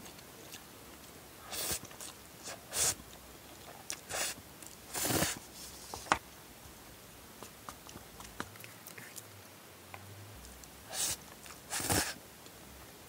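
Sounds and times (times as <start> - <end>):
person slurping noodles: 4.1 - 5.4.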